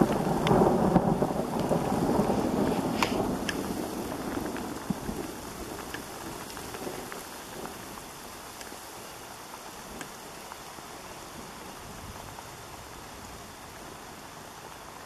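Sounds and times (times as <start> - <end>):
thunder rumble: 0.0 - 8.0
rain falling on grass: 0.0 - 15.0.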